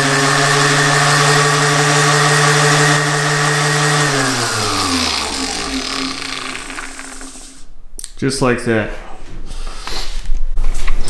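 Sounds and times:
sander motor whine: 0:00.0 - 0:07.7.

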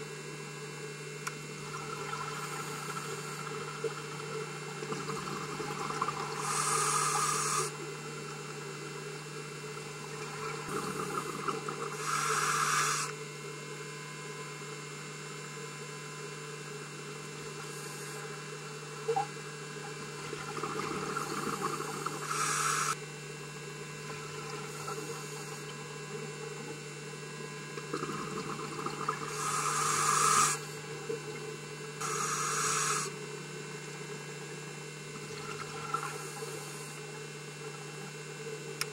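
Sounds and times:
steady low hum: 0:00.0 - 0:38.9
diver exhaling bubbles underwater: 0:01.6 - 0:09.0, 0:09.8 - 0:13.0, 0:19.1 - 0:22.9, 0:27.6 - 0:33.2, 0:35.1 - 0:36.8.

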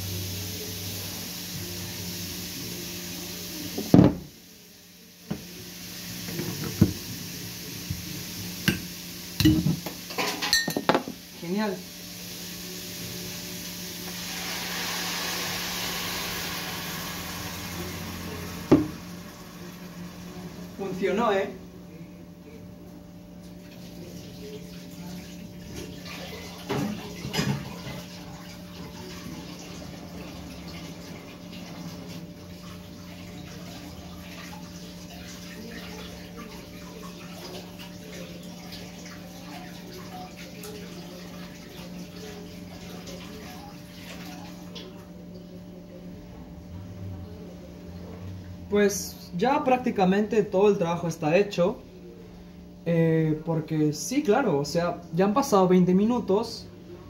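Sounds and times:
meat sizzling in a pan: 0:00.0 - 0:21.7
pot bubbling and crackling: 0:06.0 - 0:21.8, 0:23.3 - 0:45.8.

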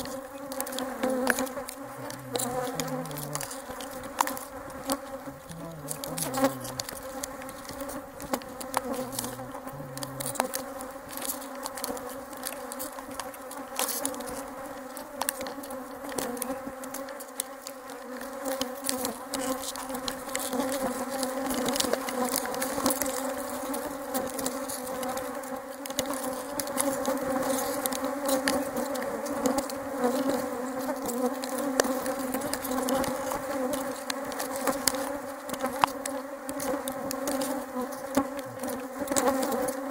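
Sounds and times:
bees buzzing: 0:00.0 - 0:14.7, 0:29.9 - 0:39.9.

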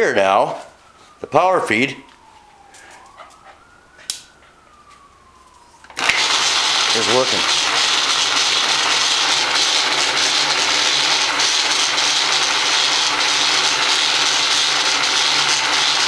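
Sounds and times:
electric motor humming: 0:05.9 - 0:16.0.

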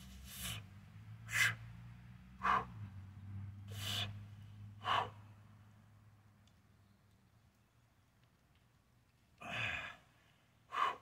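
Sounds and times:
man's forceful breaths: 0:00.1 - 0:03.0, 0:03.6 - 0:05.5, 0:09.4 - 0:11.0.

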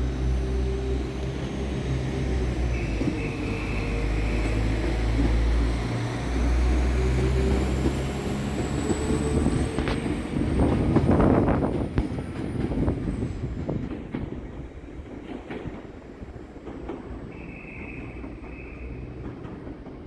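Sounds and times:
train diesel engines running: 0:00.0 - 0:20.0.

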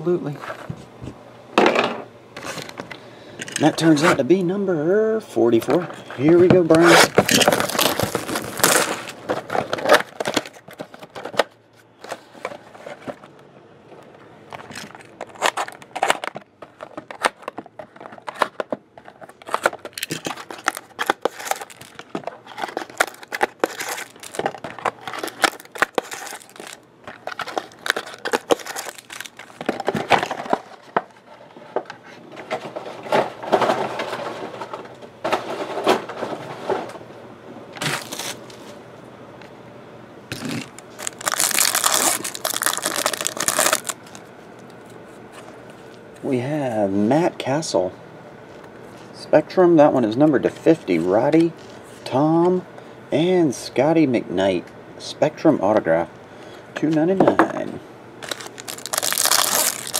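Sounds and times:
plastic shrink wrap crinkling: 0:06.7 - 0:11.3, 0:14.6 - 0:30.9, 0:40.3 - 0:44.7, 0:58.2 - 0:59.9
card packs handled tapping: 0:14.6 - 0:31.1, 0:41.0 - 0:44.2, 0:58.2 - 0:59.9.

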